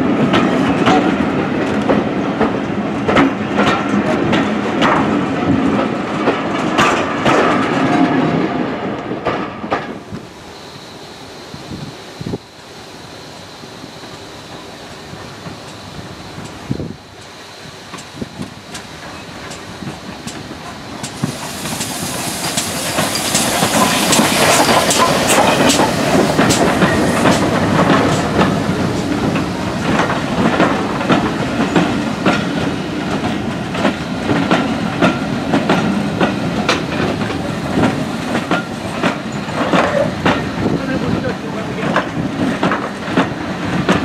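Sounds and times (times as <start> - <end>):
train wheels clickety-clack: 0.0 - 10.2, 14.0 - 44.0
steam locomotive hiss: 9.9 - 44.0.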